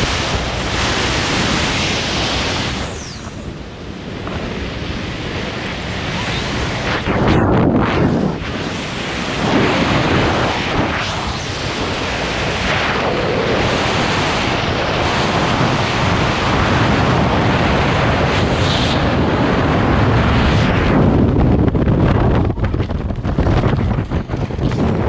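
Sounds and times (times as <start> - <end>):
wind noise on microphone: 0.0 - 25.0.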